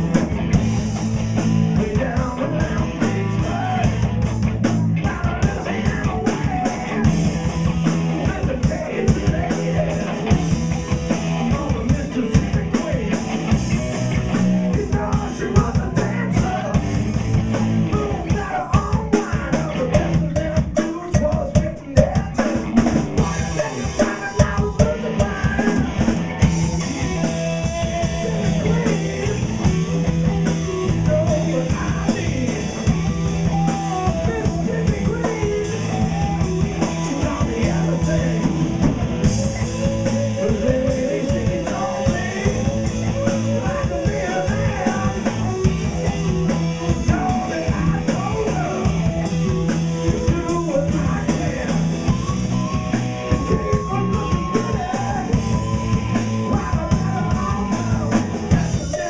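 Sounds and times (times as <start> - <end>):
bass guitar: 0.0 - 59.0
distorted electric guitars: 0.0 - 59.0
drum kit beat: 0.0 - 59.0
man singing: 0.0 - 59.0.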